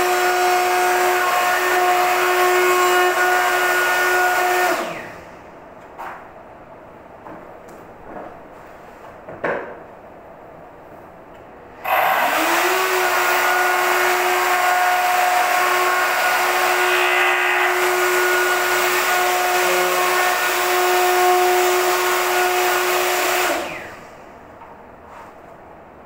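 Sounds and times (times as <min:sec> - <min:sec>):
electric router whining: 0:00.0 - 0:05.2, 0:11.8 - 0:24.0.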